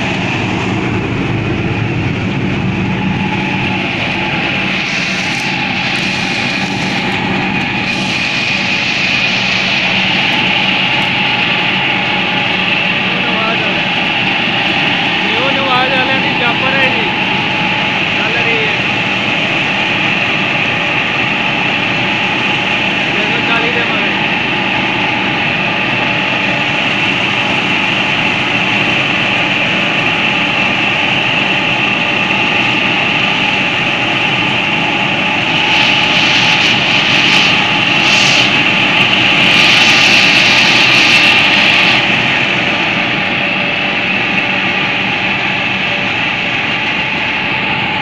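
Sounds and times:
hissing rush: 0.0s - 25.6s, 34.6s - 45.4s
high whine of spinning drum: 0.0s - 48.0s.

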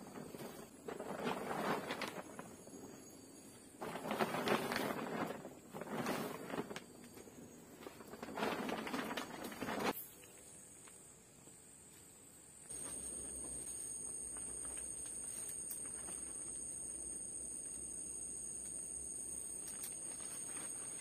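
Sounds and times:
plastic tarpaulin crinkling: 0.0s - 2.9s, 3.8s - 10.0s, 12.7s - 17.2s, 19.2s - 21.0s.

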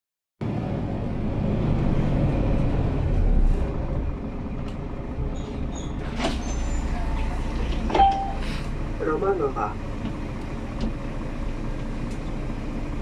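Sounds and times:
bus engine low rumble: 0.4s - 13.0s
short high beeps: 8.0s - 8.4s.

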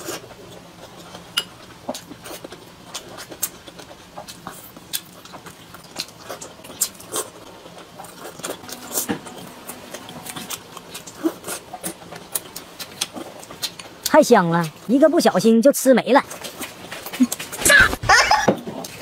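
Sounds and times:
wet chewing: 0.0s - 14.9s.

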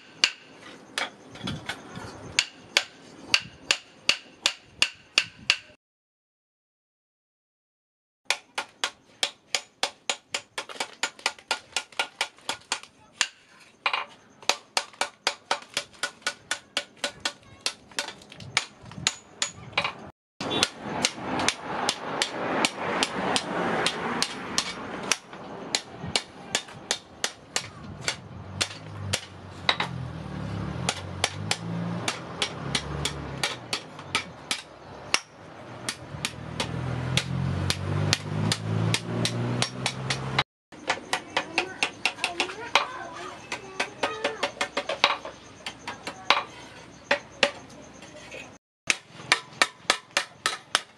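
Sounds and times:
hammer striking steel on anvil: 2.4s - 5.8s.

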